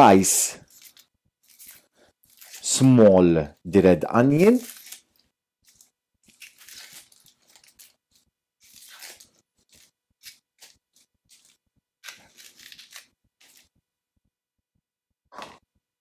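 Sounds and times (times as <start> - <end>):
onion skin crackling and tearing: 0.6 - 3.0, 4.3 - 13.7.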